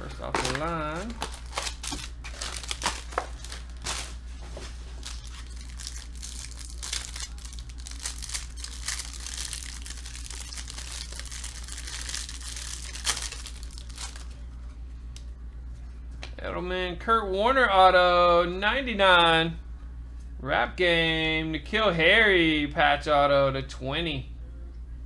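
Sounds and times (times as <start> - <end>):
cards clicking and rustling: 0.0 - 4.1, 5.0 - 14.3
plastic wrapper crinkling and tearing: 0.0 - 4.2, 5.0 - 14.4
low hum: 0.0 - 16.6.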